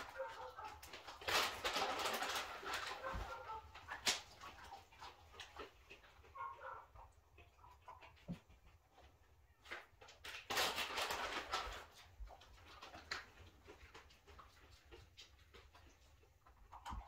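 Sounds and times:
plastic bag crinkling: 0:00.0 - 0:05.1, 0:09.7 - 0:13.5.

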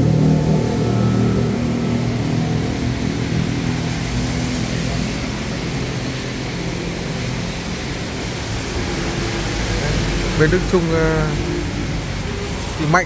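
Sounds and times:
vehicle engine humming: 0:00.0 - 0:13.0
steady hiss: 0:00.4 - 0:13.0.

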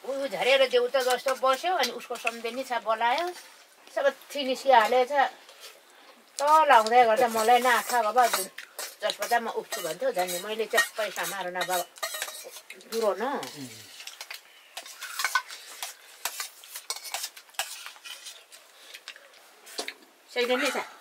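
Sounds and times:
spoons scraping steel plates: 0:00.4 - 0:03.5, 0:06.7 - 0:19.1.

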